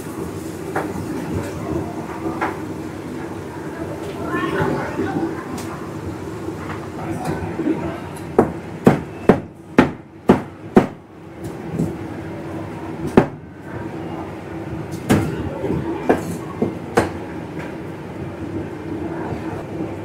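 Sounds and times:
steady background hum: 0.0s - 20.0s.

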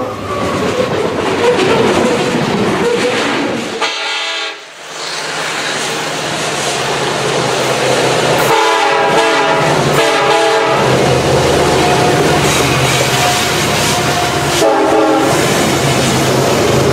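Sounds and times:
train horn blasts: 3.8s - 4.7s, 8.4s - 10.9s, 13.3s - 15.5s.

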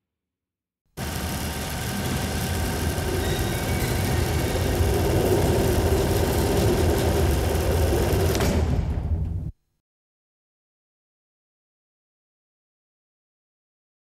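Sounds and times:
loud engine-like rumbling roar: 1.0s - 8.6s.

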